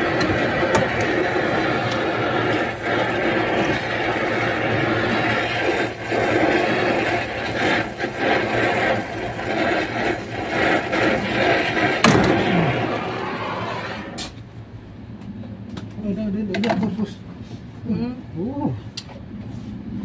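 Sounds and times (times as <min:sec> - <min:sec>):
torch flame hissing: 0:00.0 - 0:14.8.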